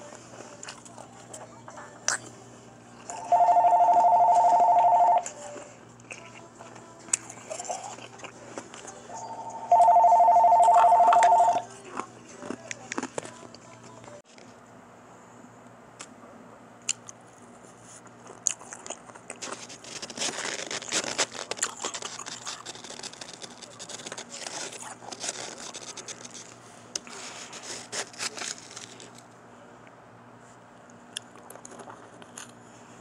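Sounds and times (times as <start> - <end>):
ice being chewed: 3.0 - 14.1, 17.8 - 29.3, 31.2 - 32.6.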